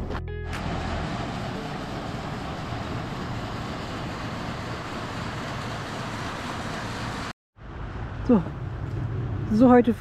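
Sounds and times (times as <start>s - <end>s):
river water rushing: 0.5s - 7.3s.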